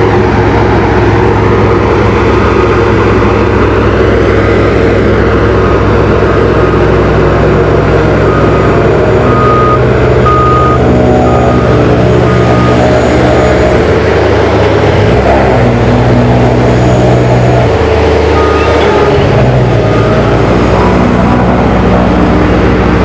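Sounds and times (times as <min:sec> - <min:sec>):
diesel engines running: 0:00.0 - 0:23.0
second engine droning: 0:00.0 - 0:23.0
reversing alarm beeping: 0:08.2 - 0:13.9, 0:18.3 - 0:21.0.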